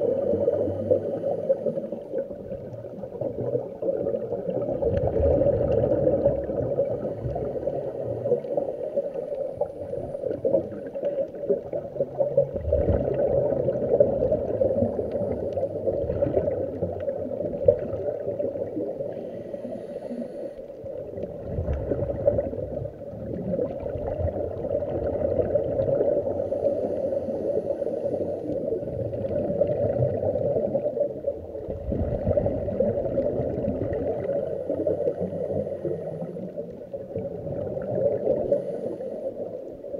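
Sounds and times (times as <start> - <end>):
low underwater hum: 0.0 - 39.9
regulator bubbles gurgling: 0.0 - 39.9.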